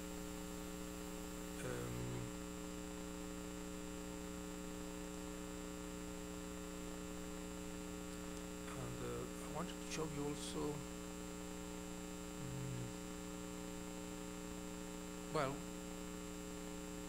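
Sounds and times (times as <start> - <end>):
electrical mains hum: 0.0 - 17.0
low vocal murmur: 12.4 - 13.0.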